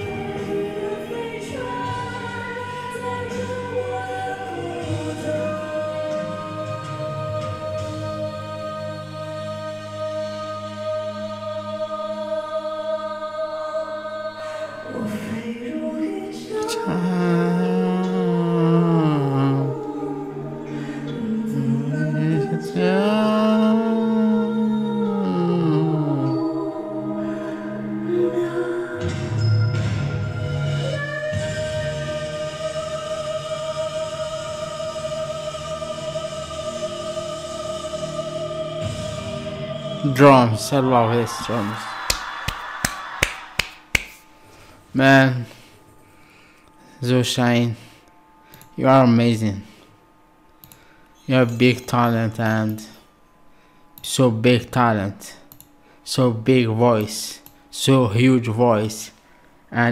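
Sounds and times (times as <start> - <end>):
sustained accompaniment: 0.0 - 42.2.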